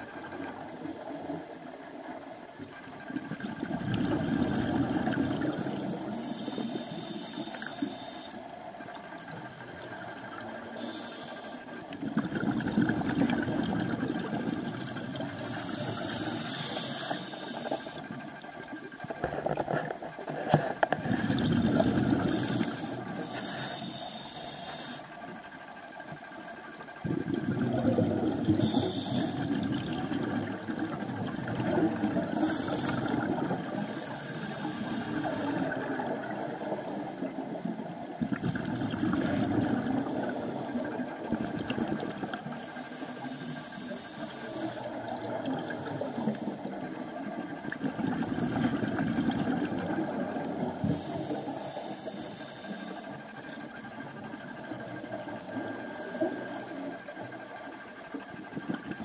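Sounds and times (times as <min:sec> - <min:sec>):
bubbling exhale underwater: 0:03.4 - 0:06.1, 0:12.0 - 0:16.4, 0:20.9 - 0:23.1, 0:27.0 - 0:34.0, 0:38.2 - 0:42.4
regulator inhale hiss: 0:05.7 - 0:08.6, 0:10.2 - 0:11.8, 0:15.3 - 0:18.3, 0:22.1 - 0:25.5, 0:28.3 - 0:29.6, 0:32.2 - 0:37.4, 0:42.4 - 0:47.7, 0:50.7 - 0:58.2.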